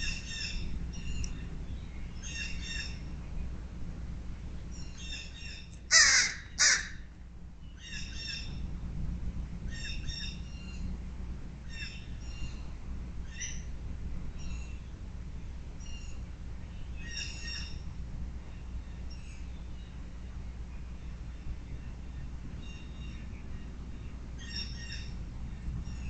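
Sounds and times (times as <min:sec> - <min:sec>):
crow cawing: 0:05.9 - 0:07.0.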